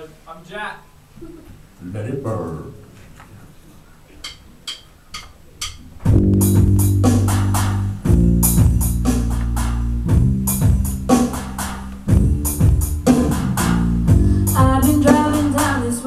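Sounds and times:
pop-rock band playing: 6.1 - 16.0.

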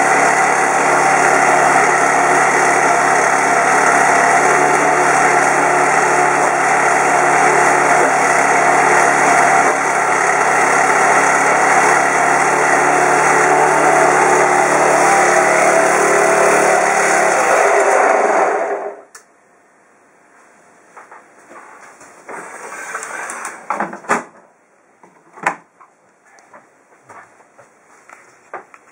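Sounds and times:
small gasoline engine running: 0.0 - 19.0.

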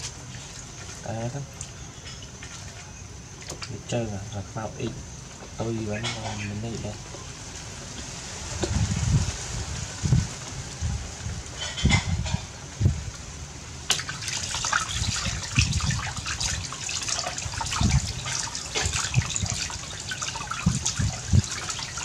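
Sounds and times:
water pouring into plastic basin: 13.8 - 22.0
hands splashing water: 13.9 - 22.0.

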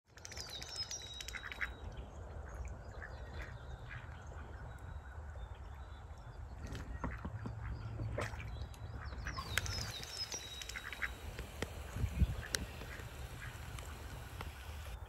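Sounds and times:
small birds singing: 0.1 - 15.0
ducks quacking: 10.6 - 15.0.

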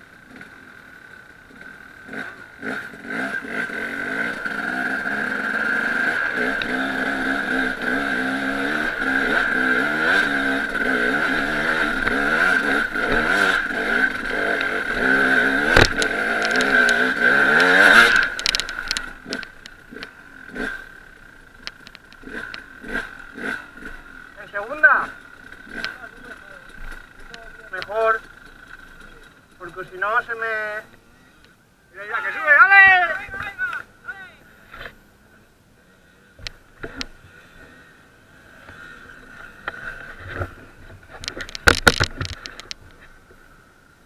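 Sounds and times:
motorcycle engine revving hard: 1.5 - 21.3, 22.1 - 28.3
knocks and rattles: 10.8 - 20.6, 39.7 - 43.1.

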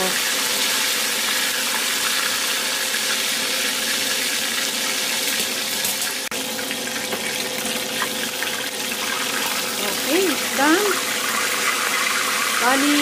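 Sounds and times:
hot oil sizzling in a wok: 0.0 - 13.0.

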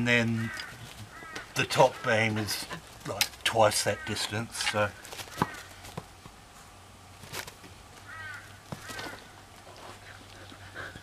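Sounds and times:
faint low hum: 0.0 - 11.0
crow cawing: 0.4 - 2.1, 3.8 - 4.3, 5.0 - 5.9, 8.0 - 9.4.

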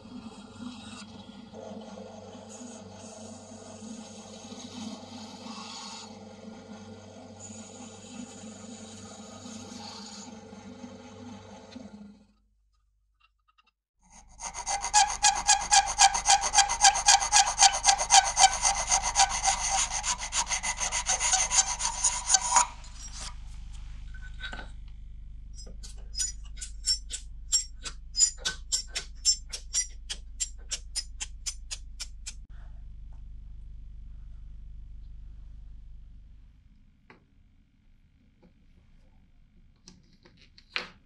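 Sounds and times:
sanding on sandpaper: 14.1 - 23.4.

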